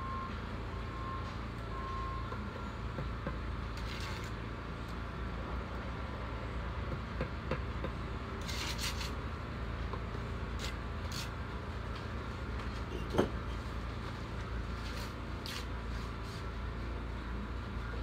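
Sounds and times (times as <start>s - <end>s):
low rumble of vehicle engines: 0.0s - 18.0s
trowel scraping mortar: 3.8s - 4.4s, 8.4s - 9.2s, 10.6s - 11.4s.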